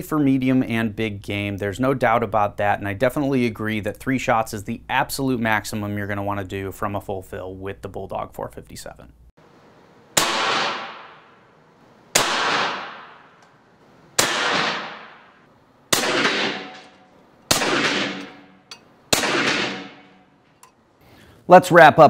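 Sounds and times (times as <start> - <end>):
air rifle shots: 10.1 - 11.4, 12.1 - 13.4, 14.2 - 20.4.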